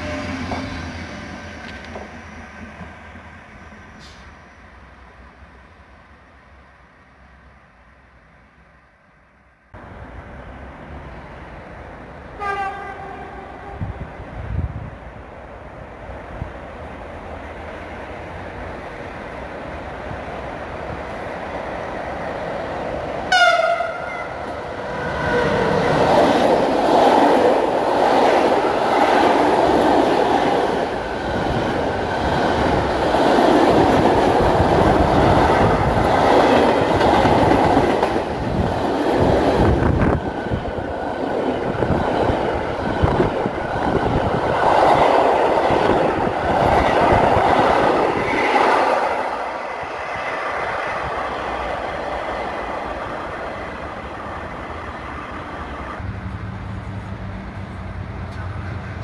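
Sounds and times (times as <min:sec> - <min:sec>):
locomotive horn blast: 0:12.4 - 0:14.0, 0:23.3 - 0:24.4.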